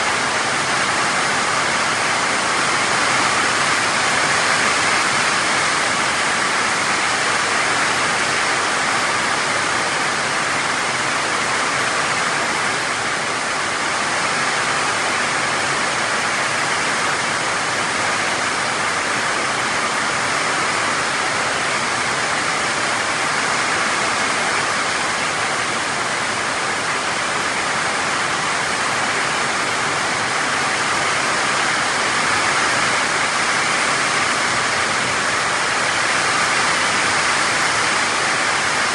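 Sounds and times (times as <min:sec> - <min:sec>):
heavy rain pouring: 0:00.0 - 0:38.9.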